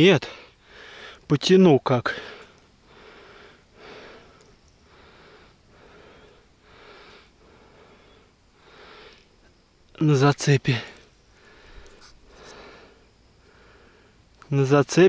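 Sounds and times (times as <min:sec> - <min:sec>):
man breathing heavily: 0:00.2 - 0:01.3, 0:02.1 - 0:09.4, 0:10.8 - 0:14.3.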